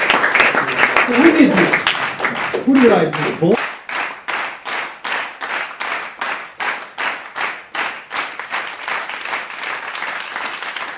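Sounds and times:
applause: 0.0s - 10.9s
group clapping in rhythm: 0.0s - 10.9s.

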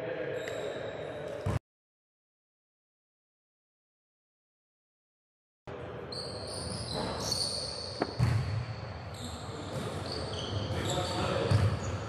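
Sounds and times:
sneakers squeaking: 6.1s - 12.0s
basketball bouncing: 8.0s - 8.6s, 11.5s - 11.8s.

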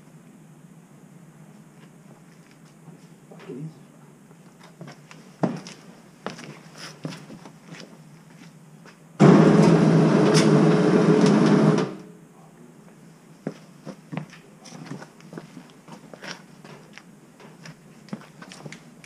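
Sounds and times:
power tool running: 9.2s - 12.1s.

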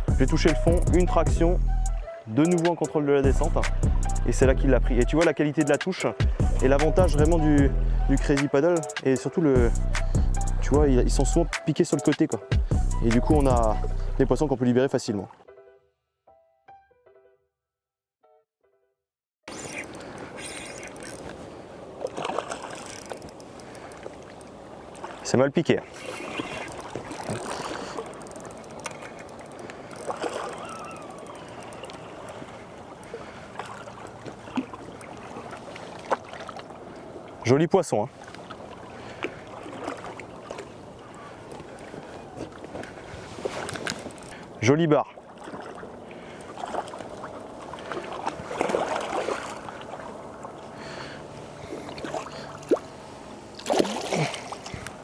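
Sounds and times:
seawater lapping against rocks: 19.5s - 55.0s
faint clicks: 26.7s - 32.4s.

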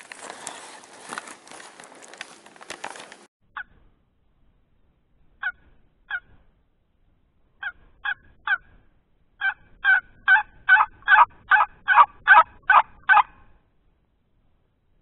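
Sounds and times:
turkey call hen yelps: 7.6s - 8.7s, 9.4s - 13.5s.

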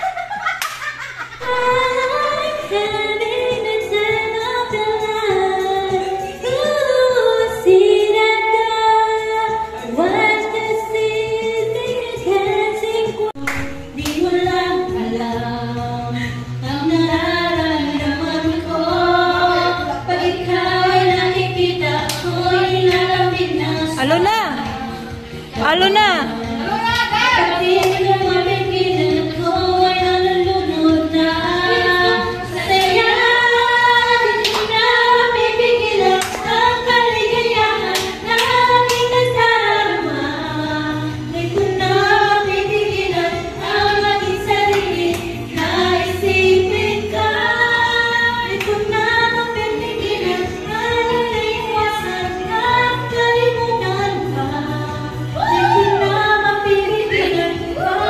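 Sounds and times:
backing track music: 0.0s - 58.0s
woman singing karaoke: 0.0s - 58.0s.

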